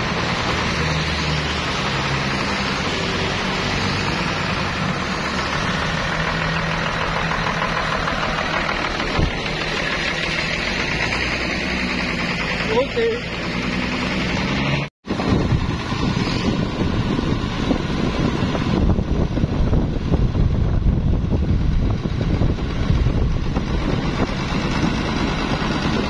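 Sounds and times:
tyres hissing on wet road: 0.0 - 14.9, 15.8 - 18.8
diesel engine running: 0.0 - 26.0.

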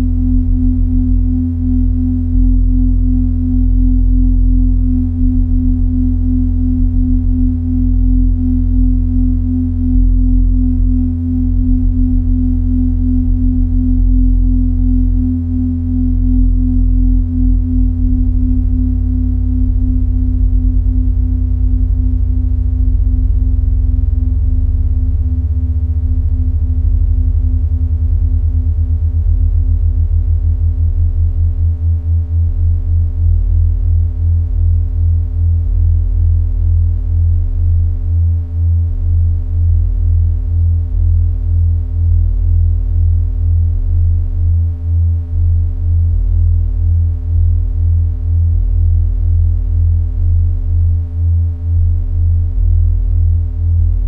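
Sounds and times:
deep bass tone pulsing: 0.0 - 54.0.

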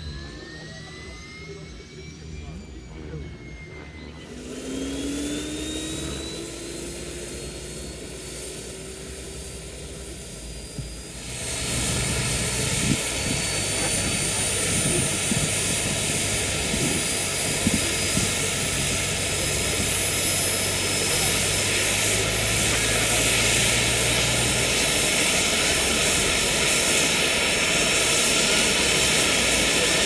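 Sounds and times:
model turbine engine whining: 0.0 - 30.0.

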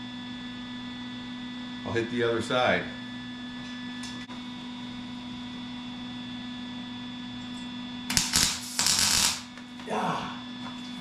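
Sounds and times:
electrical hum: 0.0 - 11.0
welding arc crackling: 8.1 - 9.6.

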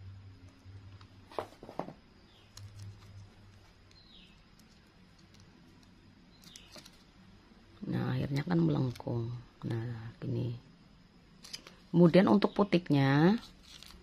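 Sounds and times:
faint low hum: 0.0 - 14.0
plastic crinkling: 13.4 - 14.0.

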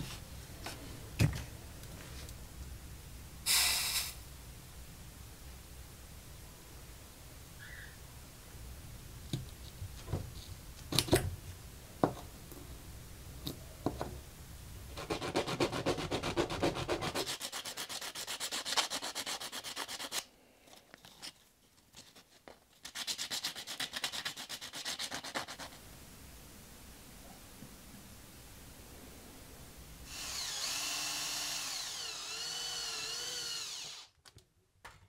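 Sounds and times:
sandpaper scraping metal: 15.0 - 20.2.

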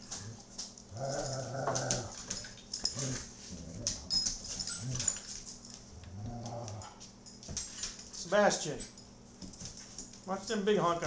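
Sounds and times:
dogs growling: 0.0 - 5.2, 5.9 - 7.0
claws clicking on tile floor: 0.0 - 8.1.

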